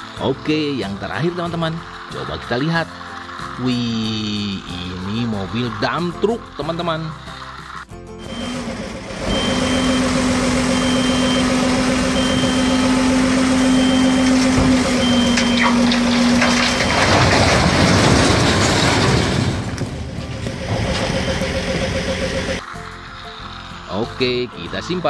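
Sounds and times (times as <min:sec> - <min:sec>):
truck engine droning: 0:00.0 - 0:25.0
high repeating beep: 0:09.3 - 0:15.6.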